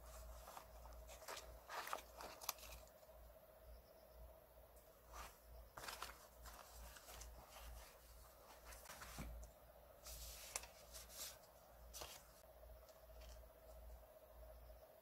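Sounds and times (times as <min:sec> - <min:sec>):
paper rustling: 0:00.0 - 0:03.0, 0:05.0 - 0:13.8
faint steady hum: 0:00.0 - 0:15.0.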